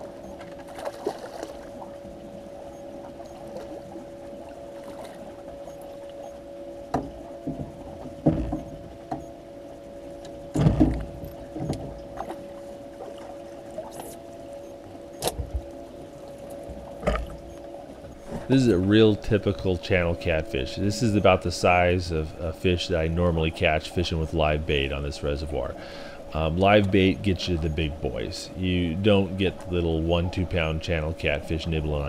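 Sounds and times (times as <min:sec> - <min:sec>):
steady electric hum: 0:00.0 - 0:32.0
knocks and thumps on a boat: 0:06.9 - 0:09.4, 0:10.2 - 0:12.5, 0:15.2 - 0:15.8, 0:16.6 - 0:18.5.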